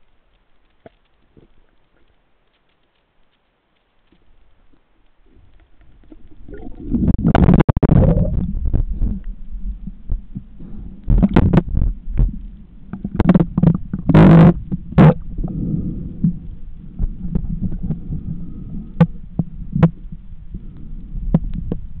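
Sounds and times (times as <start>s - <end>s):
water sloshing against camera: 4.0s - 18.4s.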